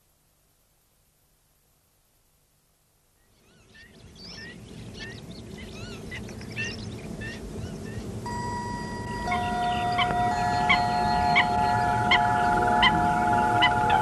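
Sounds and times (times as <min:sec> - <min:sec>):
regular electronic pulse: 0:08.2 - 0:14.0
steady electronic tones: 0:08.3 - 0:14.0.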